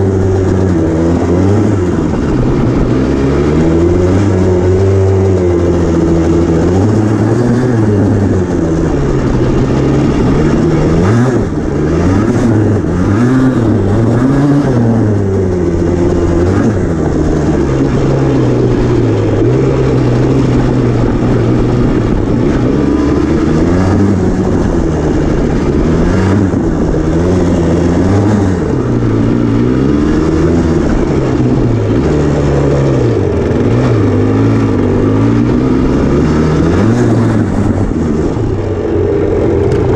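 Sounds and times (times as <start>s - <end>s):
atv engine revving: 0.0s - 39.9s.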